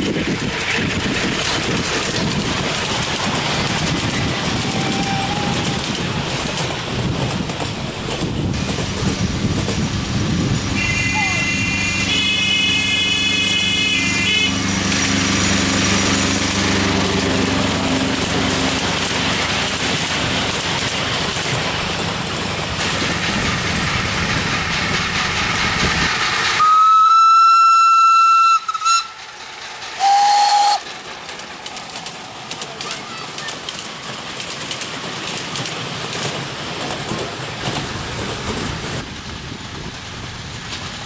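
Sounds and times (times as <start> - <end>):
miniature train running: 0.0 - 41.0
steam locomotive whistle: 4.6 - 5.8, 10.8 - 14.6, 26.6 - 29.2, 30.0 - 30.8.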